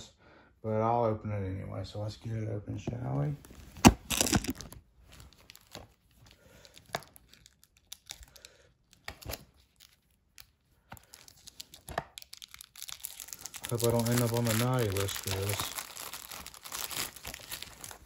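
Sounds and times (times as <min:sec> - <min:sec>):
shrink wrap tearing and crinkling: 0:03.7 - 0:18.0.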